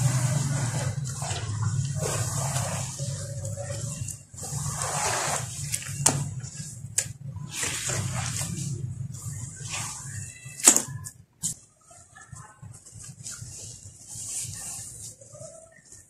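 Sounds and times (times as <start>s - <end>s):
hands sloshing through slurry: 0.0s - 10.7s.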